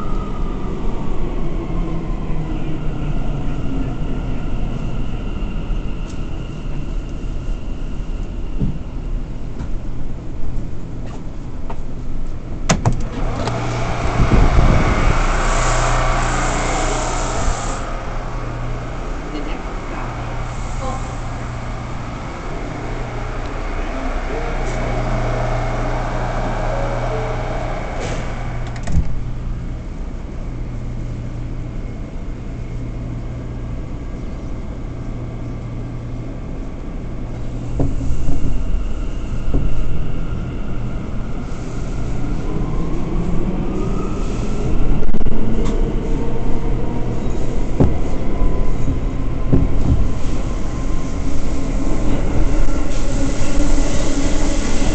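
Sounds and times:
subway car hum and rumble: 0.0 - 54.9
wheel and rail noise rushing: 10.9 - 30.5
low motor hum: 13.0 - 30.0.

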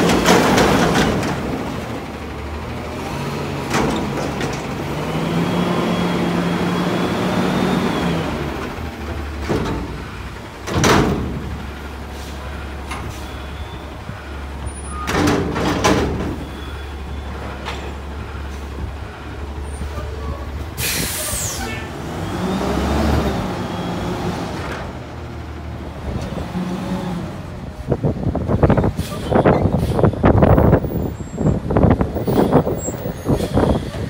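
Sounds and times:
metal dumpster bangs: 0.0 - 1.9, 9.3 - 11.7, 14.8 - 16.8
garbage truck diesel engine revving: 0.0 - 34.0.

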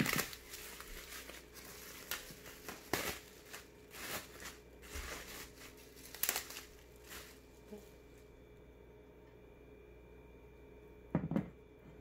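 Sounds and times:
bubble wrap crackles: 0.0 - 8.3
bubble wrap crinkling and rustling: 0.0 - 8.3.

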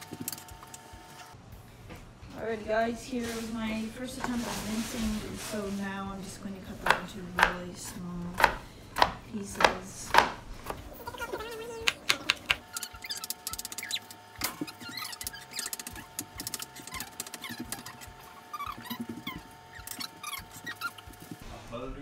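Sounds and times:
knife chopping on cutting board: 6.8 - 10.8.

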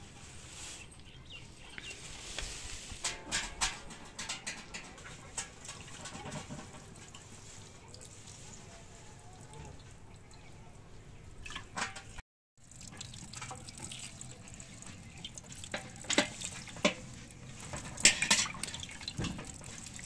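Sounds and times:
tap water running and dripping: 3.1 - 8.8, 11.4 - 20.0.

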